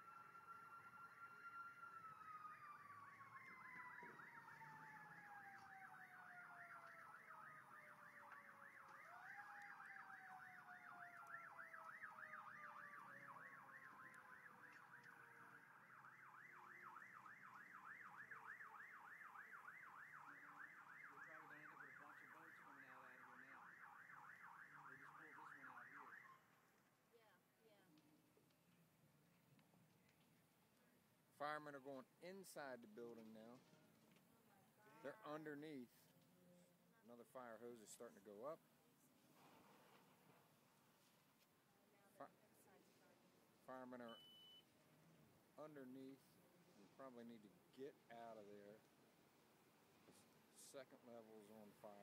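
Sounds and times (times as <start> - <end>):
yelping siren: 0.0 - 26.6
wailing siren: 0.0 - 26.8.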